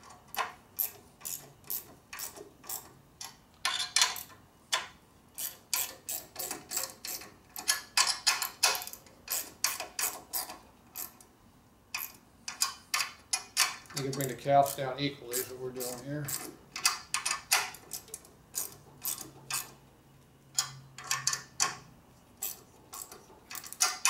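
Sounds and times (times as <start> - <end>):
socket ratchet clicking: 0.3 - 11.2, 20.6 - 24.0.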